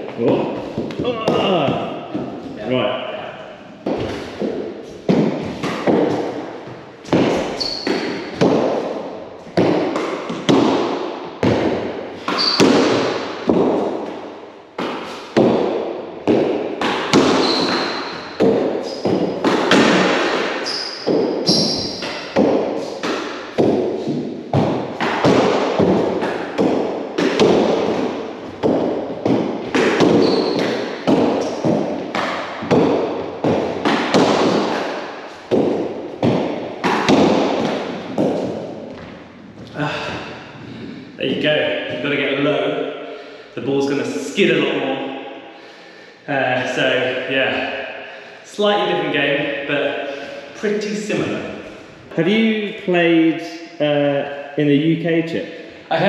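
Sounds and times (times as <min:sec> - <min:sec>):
ball thudding off walls and floor: 0:03.8 - 0:40.9
ball slapped by gloved hands: 0:07.1 - 0:14.2, 0:14.8 - 0:39.2.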